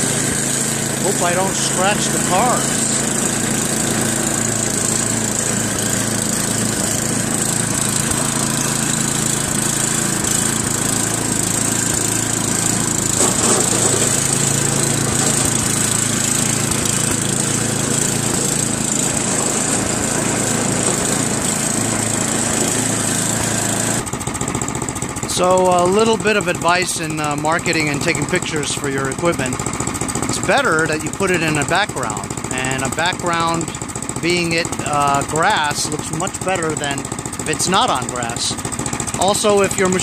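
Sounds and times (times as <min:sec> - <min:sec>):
snowblower engine running: 0:00.0 - 0:40.0.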